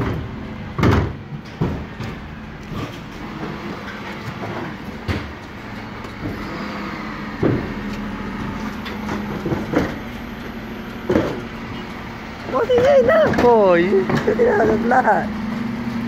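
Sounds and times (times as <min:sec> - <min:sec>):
garbage truck engine hum: 0:00.0 - 0:16.0
sharp knocks: 0:00.8 - 0:02.2, 0:07.4 - 0:07.8.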